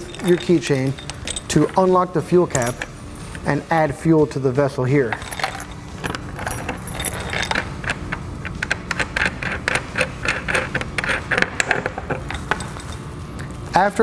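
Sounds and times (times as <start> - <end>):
keys jingling: 0.0 - 3.5, 5.0 - 10.4, 12.0 - 13.2.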